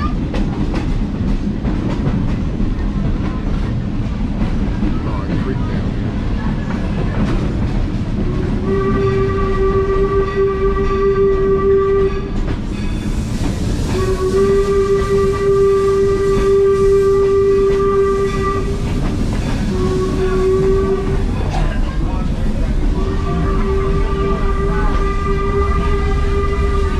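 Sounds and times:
low rumble of moving train: 0.0 - 26.9
locomotive whistle blasts: 8.4 - 12.4, 13.9 - 18.9, 19.6 - 21.4, 23.0 - 26.9.

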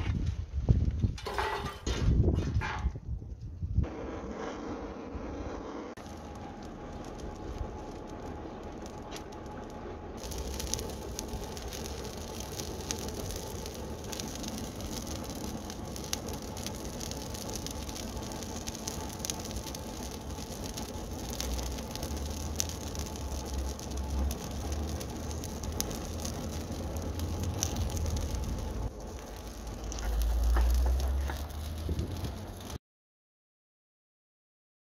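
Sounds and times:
wind rumbling on microphone: 0.0 - 32.8
fire crackling and popping: 5.9 - 32.8.

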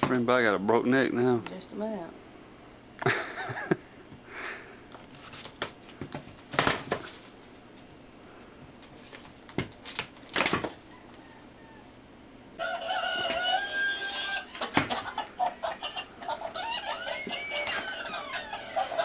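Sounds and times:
thumps and scuffles: 5.0 - 7.6
rooster crowing: 10.8 - 19.0.

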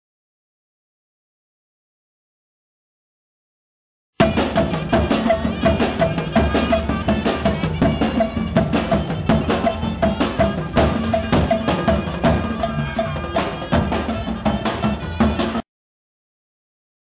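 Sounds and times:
parade drums and percussion: 4.2 - 15.6.

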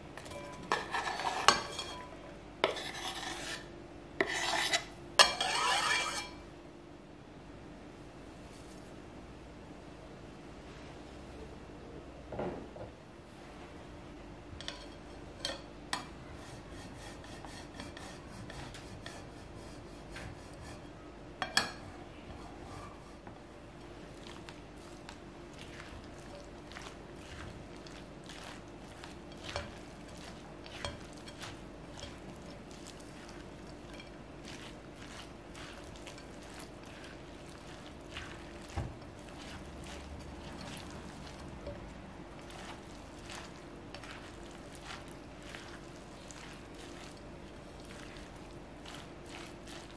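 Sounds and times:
faint steady hum: 0.0 - 49.9
spatula scraping glass bowl: 0.2 - 6.4, 25.0 - 47.2
cheese grating: 0.7 - 1.9, 2.6 - 6.4, 24.1 - 49.9.

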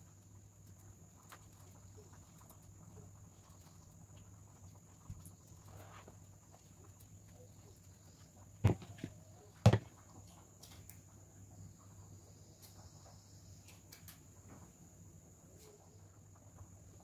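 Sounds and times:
plastic bowls knocking: 8.6 - 9.9.

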